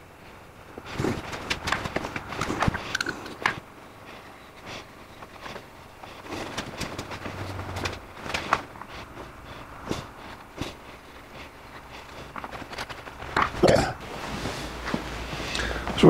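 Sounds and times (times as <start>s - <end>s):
footsteps: 0.7s - 16.0s.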